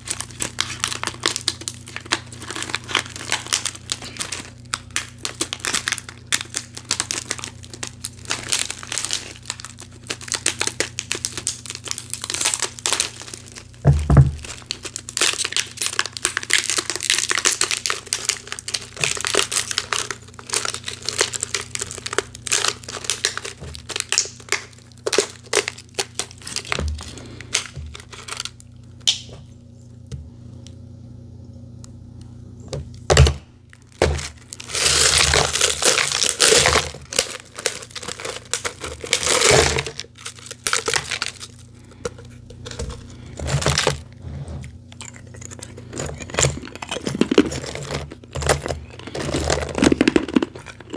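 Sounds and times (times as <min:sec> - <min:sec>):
plastic bottle crinkling: 0:00.0 - 0:29.3, 0:33.1 - 0:50.9
ice cracking: 0:34.0 - 0:41.6.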